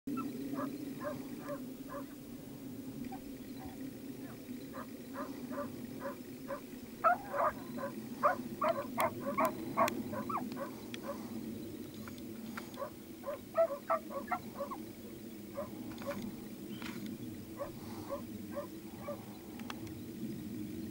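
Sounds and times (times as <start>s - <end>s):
low background noise: 0.1s - 20.9s
short animal calls: 4.8s - 11.2s, 12.8s - 14.8s.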